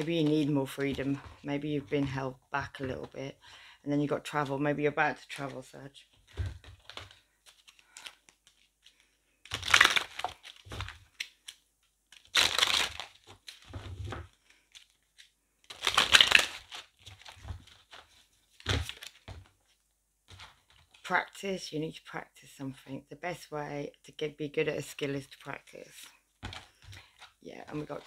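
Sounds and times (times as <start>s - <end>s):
cards being shuffled: 5.2s - 21.0s, 26.4s - 28.0s.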